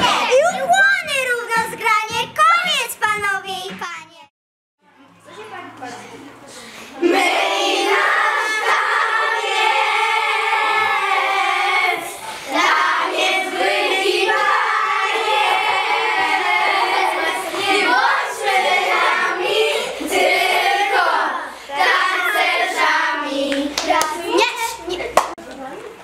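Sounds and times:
girls singing together: 6.9 - 24.8.

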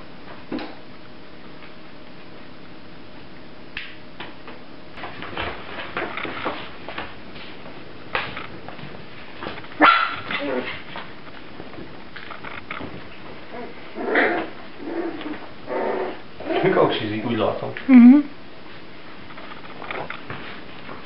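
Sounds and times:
puppy whining: 9.8 - 10.9, 13.5 - 16.8.

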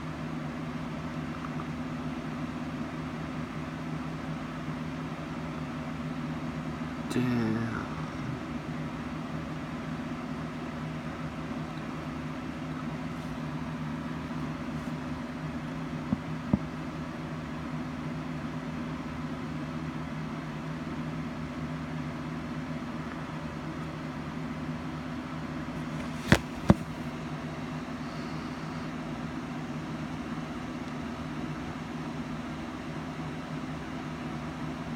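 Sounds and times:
low mechanical hum: 0.0 - 34.9.

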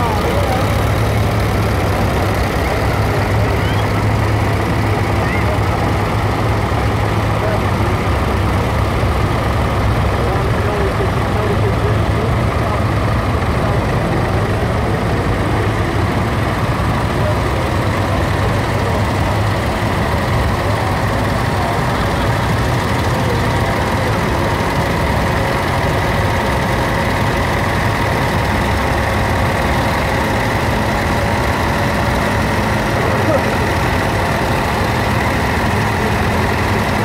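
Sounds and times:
tractor engines droning: 0.0 - 37.0.

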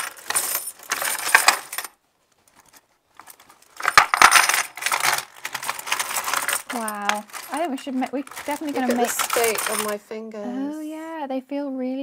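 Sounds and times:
coins jingling into wooden drawer: 0.0 - 1.9, 2.6 - 10.0.

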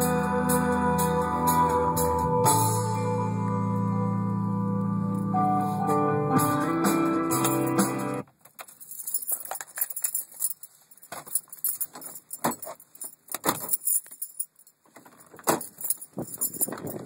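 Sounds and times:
keys jangling: 7.3 - 7.8, 8.5 - 17.0.

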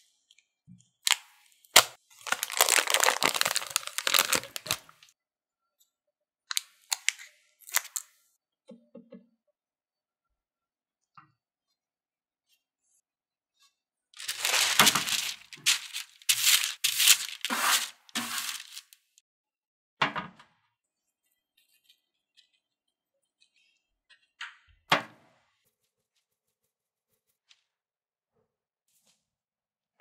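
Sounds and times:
parchment paper crinkling: 1.8 - 5.1, 14.2 - 19.1.

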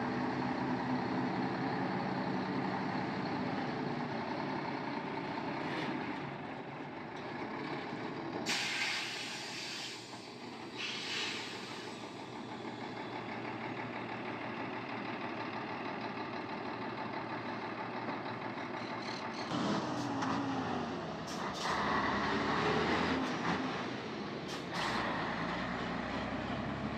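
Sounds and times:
diesel truck engines running: 0.0 - 26.9
air brake hisses: 8.4 - 12.2
truck engine revving: 19.4 - 26.9.

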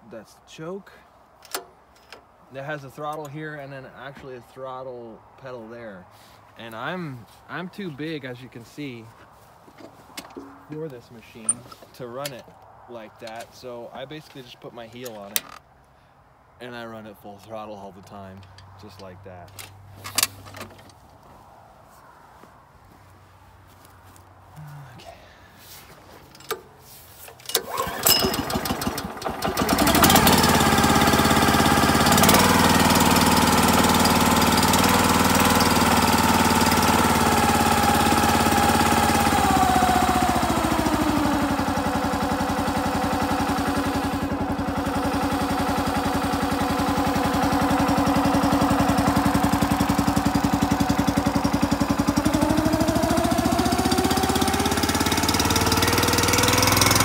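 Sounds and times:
engine cranking: 26.2 - 57.0
small gas engine running: 27.5 - 57.0.

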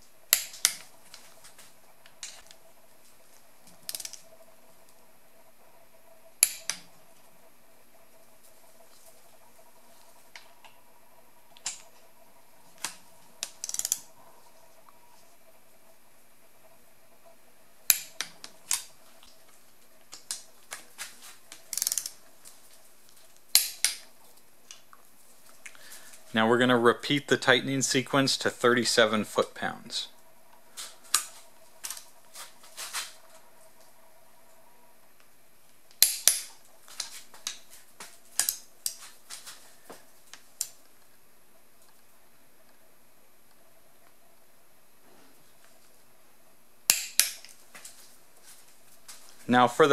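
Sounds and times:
torque wrench clicking: 3.9 - 4.2, 13.4 - 14.0, 21.7 - 22.2
ratchet rattling: 13.6 - 14.0, 21.7 - 22.2.

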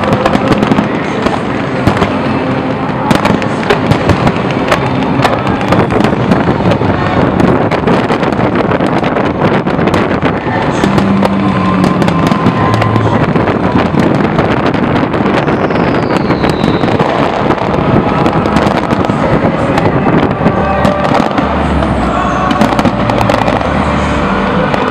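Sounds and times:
fireworks cracking and popping: 0.0 - 24.9
falling whistle: 15.4 - 17.0.

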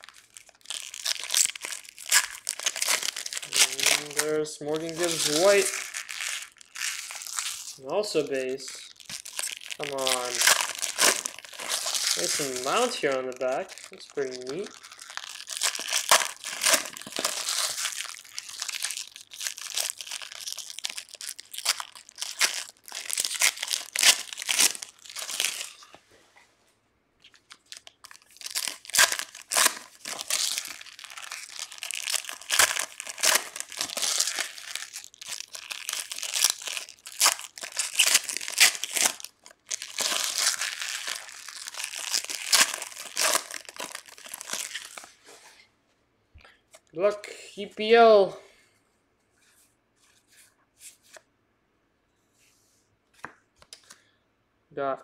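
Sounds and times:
foil wrappers crinkling and tearing: 0.0 - 25.9, 27.2 - 45.2.

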